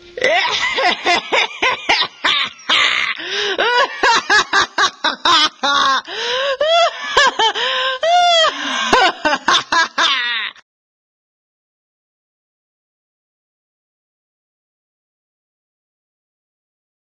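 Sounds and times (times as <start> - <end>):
person gasping and wailing: 2.5 - 4.2, 5.3 - 10.6.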